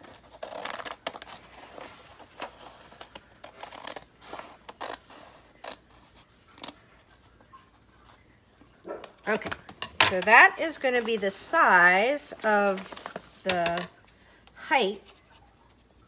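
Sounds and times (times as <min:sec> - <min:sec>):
scissors snipping paper: 0:00.0 - 0:01.4, 0:02.4 - 0:05.8
paper rustle: 0:00.0 - 0:08.4, 0:10.1 - 0:14.3.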